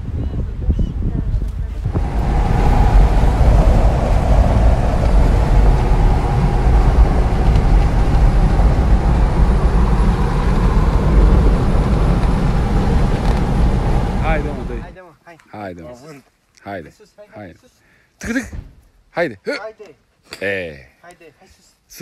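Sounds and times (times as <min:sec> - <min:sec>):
vehicle rumble from inside cabin: 0:01.9 - 0:14.9.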